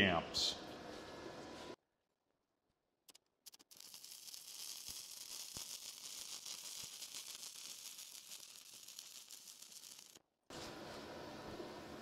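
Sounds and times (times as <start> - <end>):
welding arc crackling: 3.1 - 10.2
welding arc pops: 3.1 - 10.2.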